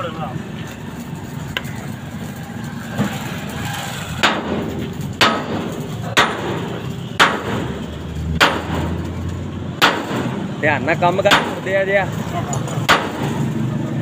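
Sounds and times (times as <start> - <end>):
sledgehammer striking steel: 4.2 - 9.1, 9.8 - 10.5, 11.2 - 11.8, 12.7 - 13.5.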